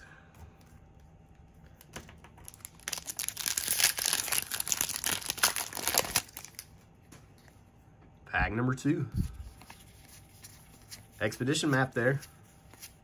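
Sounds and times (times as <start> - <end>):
foil wrapper crinkling and tearing: 2.5 - 6.7.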